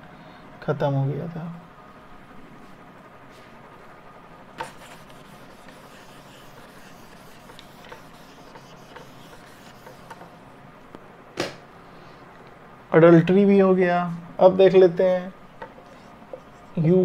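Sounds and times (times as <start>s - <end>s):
eraser rubbing on whiteboard: 4.6s - 10.4s.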